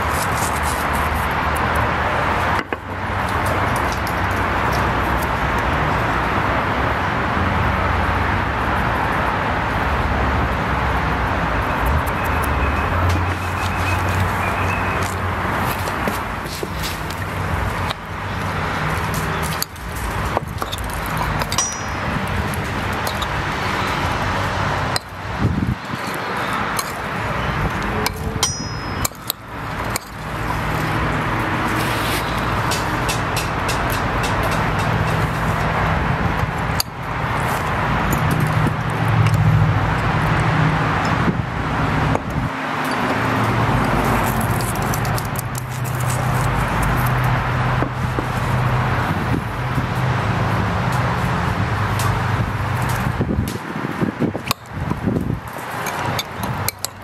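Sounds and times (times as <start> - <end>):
road traffic noise: 0.0 - 57.0
vehicle engine hum: 0.0 - 57.0
high ring: 21.5 - 22.6, 28.0 - 29.3.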